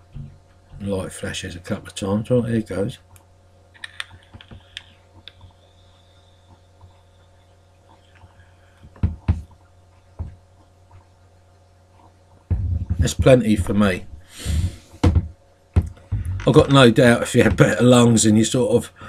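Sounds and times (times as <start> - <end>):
e-cigarette hiss and crackle: 3.8 - 7.4
breath puffs: 14.2 - 15.2.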